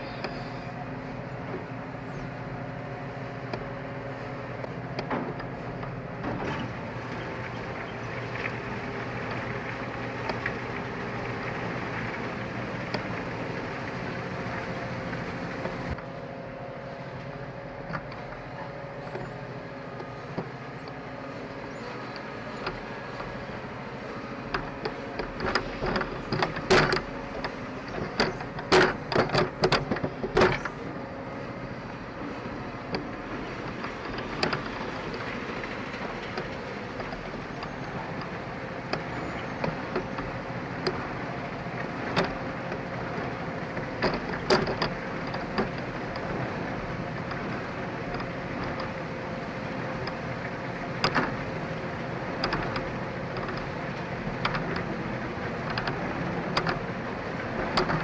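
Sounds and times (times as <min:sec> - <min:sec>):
wood chipper droning: 0:00.0 - 0:58.0.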